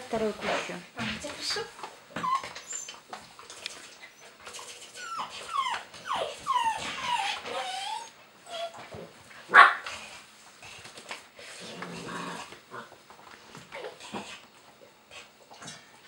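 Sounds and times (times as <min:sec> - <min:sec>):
dog whining: 0:01.6 - 0:03.0, 0:04.0 - 0:08.9.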